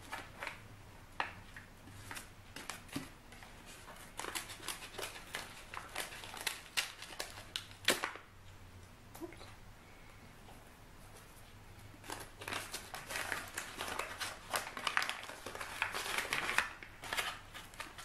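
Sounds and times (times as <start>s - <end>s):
paper crinkling: 0.0s - 0.6s, 1.2s - 8.2s, 12.0s - 18.0s.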